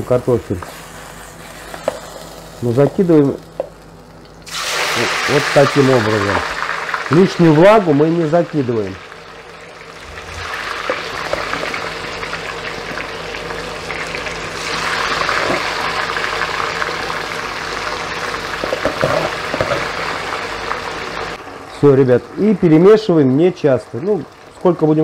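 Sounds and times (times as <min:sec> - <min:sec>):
potato sticks sizzling in hot oil: 0:04.4 - 0:21.4.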